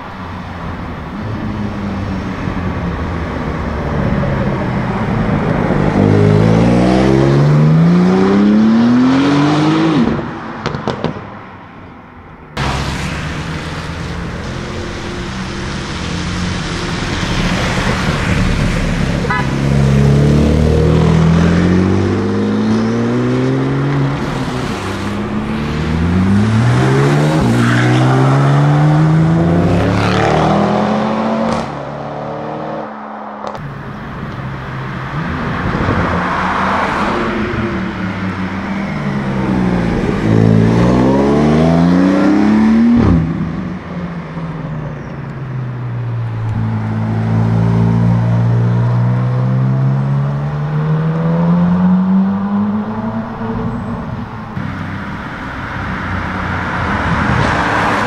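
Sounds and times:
sports car accelerating hard: 0:04.1 - 0:11.2, 0:17.2 - 0:33.7, 0:35.1 - 0:43.7, 0:46.5 - 0:58.0.

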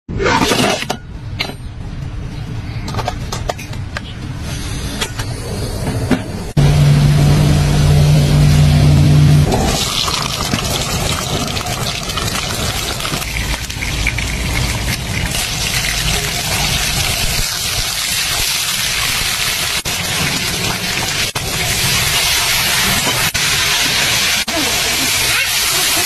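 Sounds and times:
fish sizzling in hot oil: 0:09.8 - 0:26.0.

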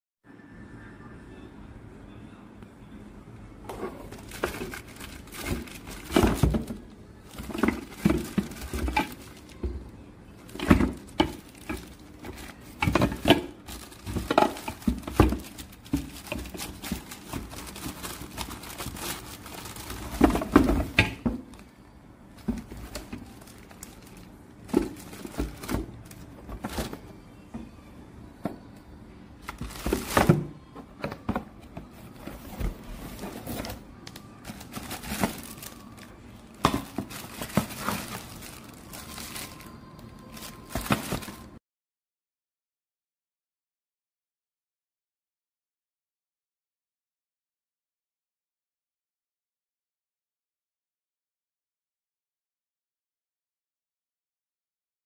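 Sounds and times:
parts knocking against cardboard box: 0:03.7 - 0:09.8, 0:10.5 - 0:19.2, 0:19.9 - 0:21.5, 0:24.7 - 0:27.0, 0:36.6 - 0:38.2
plastic bags crinkling: 0:04.0 - 0:09.8, 0:10.4 - 0:21.6, 0:22.4 - 0:27.1, 0:29.4 - 0:30.5, 0:32.2 - 0:41.6.

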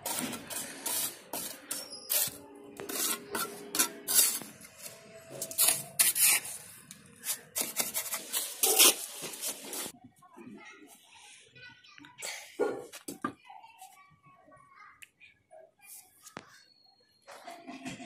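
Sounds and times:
trowel scraping mortar: 0:00.0 - 0:09.9.

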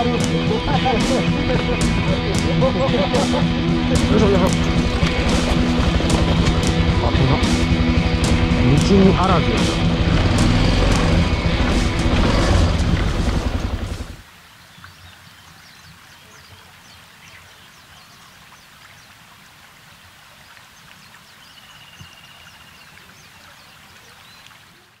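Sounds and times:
motorcycle engines running: 0:00.0 - 0:14.2
birds chirping: 0:00.0 - 0:19.2, 0:20.5 - 0:24.8.

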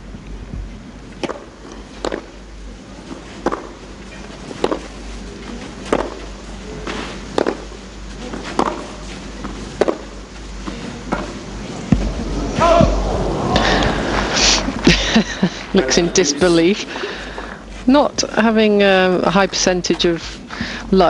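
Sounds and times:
tennis ball hit by rackets: 0:01.2 - 0:02.3, 0:03.4 - 0:03.7, 0:04.6 - 0:04.9, 0:05.9 - 0:06.2, 0:07.3 - 0:07.7, 0:08.3 - 0:08.9, 0:09.8 - 0:10.1.

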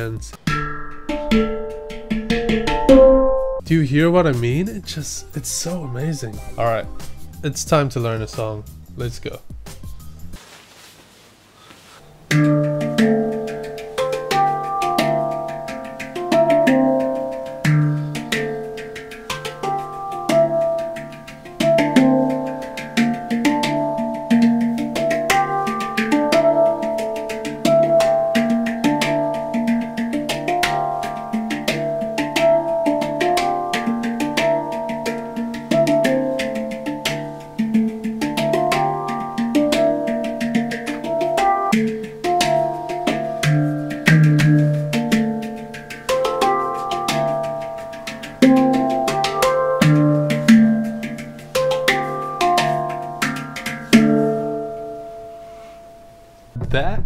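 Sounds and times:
handpan melody: 0:00.0 - 0:10.4, 0:12.1 - 0:56.4
finger taps on handpan: 0:12.3 - 0:54.9
deep bass note: 0:56.6 - 0:57.0.

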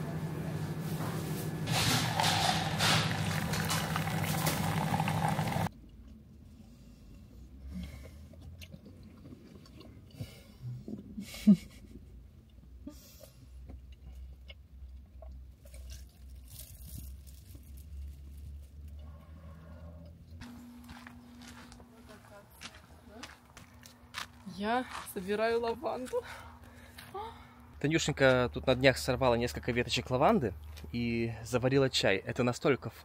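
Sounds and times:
coffee machine whirring: 0:00.0 - 0:05.7
chewing: 0:07.9 - 0:11.1, 0:13.2 - 0:20.9
paper wrappers rustling: 0:16.1 - 0:18.6.

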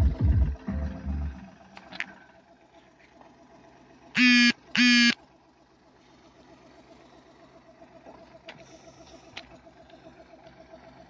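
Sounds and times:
vehicle horn honking: 0:04.2 - 0:05.2.

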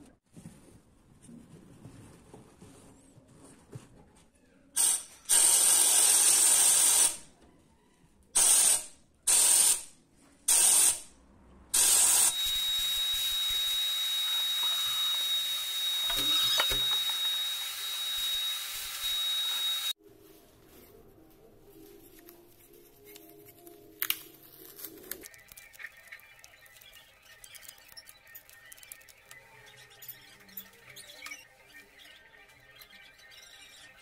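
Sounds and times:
high whistle: 0:12.2 - 0:20.0.

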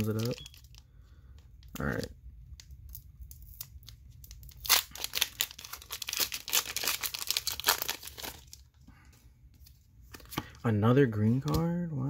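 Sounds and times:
foil crinkling: 0:00.0 - 0:00.8, 0:03.5 - 0:08.6
foil wrapper ripping: 0:04.3 - 0:08.6.

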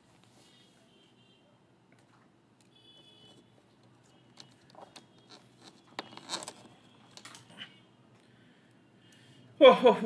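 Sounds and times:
small objects rustling and clicking: 0:03.8 - 0:07.5.

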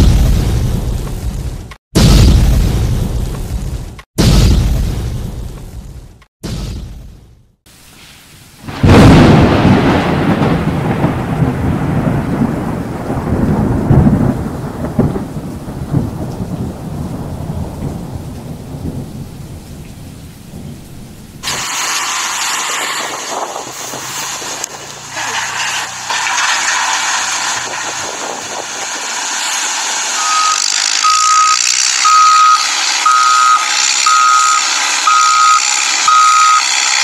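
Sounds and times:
thunderclap and rolling thunder: 0:00.0 - 0:06.0, 0:08.6 - 0:25.0, 0:26.4 - 0:29.6
steady hiss: 0:07.7 - 0:08.8, 0:21.4 - 0:25.0.

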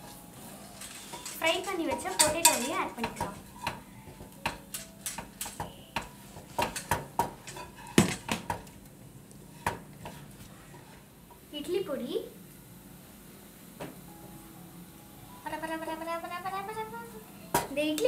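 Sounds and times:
metal spoon scraping cooking pan: 0:00.6 - 0:03.8, 0:06.6 - 0:08.2.

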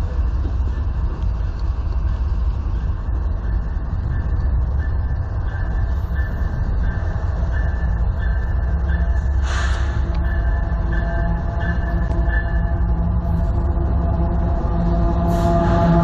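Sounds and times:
locomotive engine rumble: 0:00.0 - 0:16.0.

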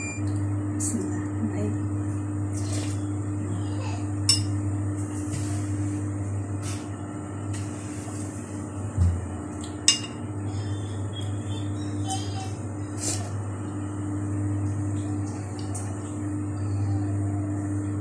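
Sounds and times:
spoon clinking on dishware: 0:09.9 - 0:10.2.

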